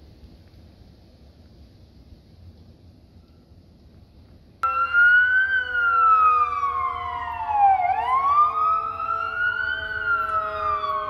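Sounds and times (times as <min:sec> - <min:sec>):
emergency siren wailing: 0:04.6 - 0:11.0.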